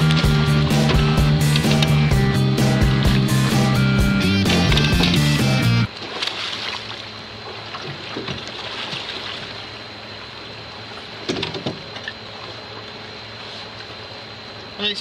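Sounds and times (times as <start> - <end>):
low steady hum: 0.0 - 15.0
water washing against boat hull: 4.4 - 9.8
loud knocks on boat: 11.2 - 11.9.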